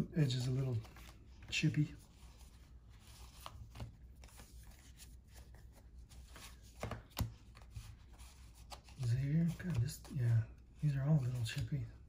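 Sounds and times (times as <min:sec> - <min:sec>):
cards sliding against cards: 0:00.7 - 0:10.2.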